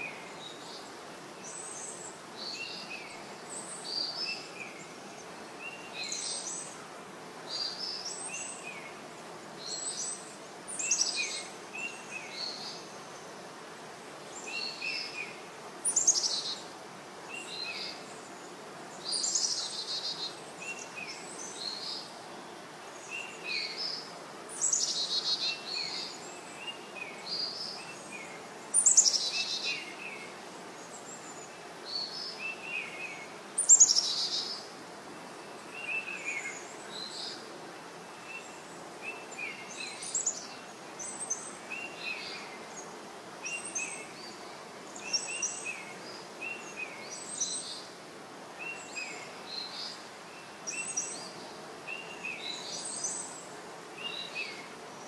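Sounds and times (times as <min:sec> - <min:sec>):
steady background noise: 0:00.0 - 0:55.0
songbird falling song phrases: 0:17.3 - 0:47.9, 0:48.6 - 0:54.8.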